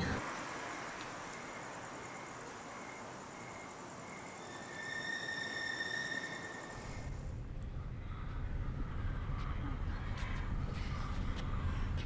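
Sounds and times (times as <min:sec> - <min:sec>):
crickets chirping: 0:00.0 - 0:12.0
night ambience hiss: 0:00.0 - 0:12.0
low vehicle rumble: 0:06.8 - 0:12.0.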